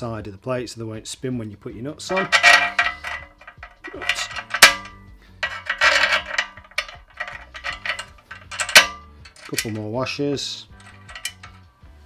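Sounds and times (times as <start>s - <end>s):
bolts and nuts clinking: 2.0s - 10.0s, 10.7s - 11.7s.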